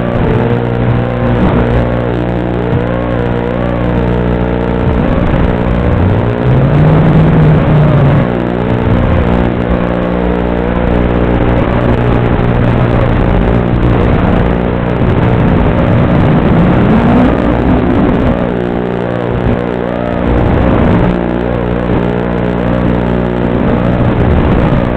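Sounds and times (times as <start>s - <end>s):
quadcopter motors whining: 0.0s - 19.2s.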